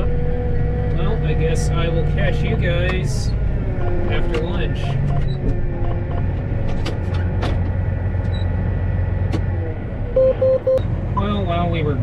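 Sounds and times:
tractor diesel engine droning: 0.0s - 12.0s.

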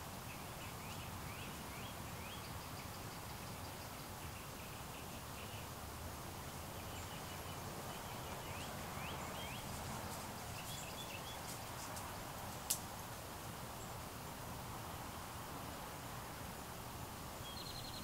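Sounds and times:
steady hiss: 0.0s - 18.0s
faint bird chirps: 17.4s - 18.0s.

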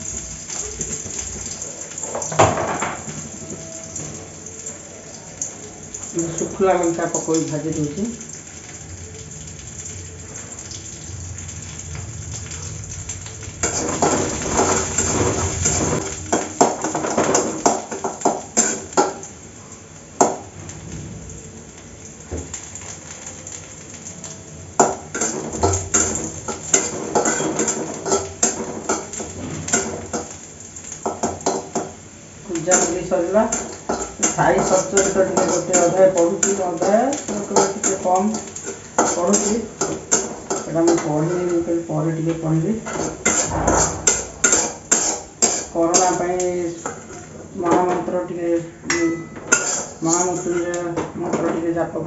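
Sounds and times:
onion sizzling in hot oil: 0.0s - 52.0s
spatula scraping metal pan: 13.6s - 18.0s, 24.8s - 30.2s, 32.6s - 41.6s, 42.8s - 47.3s, 48.9s - 50.8s.

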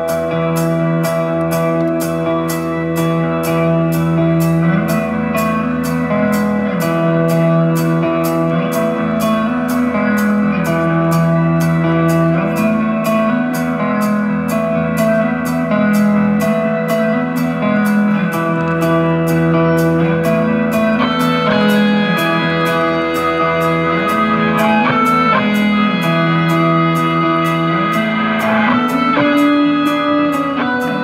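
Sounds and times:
ringing electric guitar notes: 0.0s - 31.0s
steady high pulse: 18.2s - 31.0s.

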